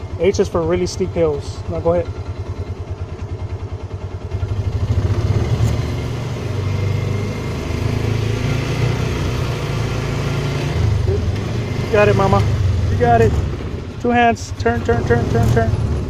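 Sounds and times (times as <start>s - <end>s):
utility vehicle engine idling: 0.0s - 8.4s, 9.7s - 16.0s.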